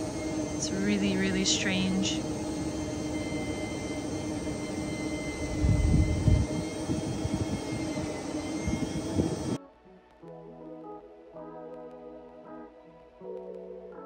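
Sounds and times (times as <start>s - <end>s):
engine drone: 0.0s - 9.6s.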